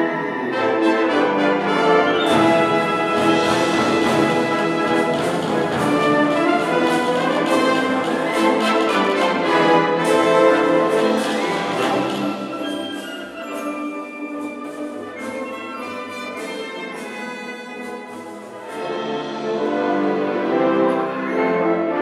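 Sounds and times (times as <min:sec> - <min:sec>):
trombones playing sustained chords: 0:00.0 - 0:12.7
concert wind band playing: 0:00.0 - 0:22.0.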